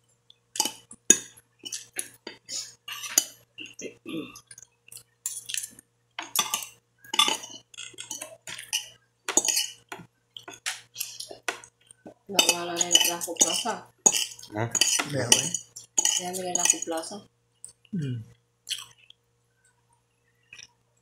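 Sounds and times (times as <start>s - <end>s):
cutlery scraping a plate: 0.6s - 3.4s, 6.2s - 11.6s, 12.4s - 16.8s.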